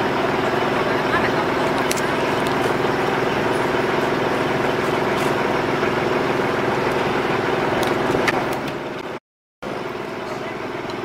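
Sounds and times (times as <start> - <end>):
chainsaw engine idling: 0.0 - 8.6.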